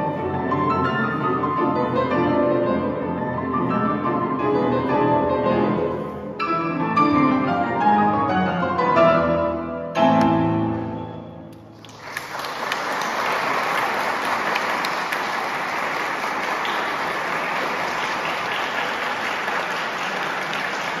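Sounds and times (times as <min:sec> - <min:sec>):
audience applause: 0:11.7 - 0:21.0.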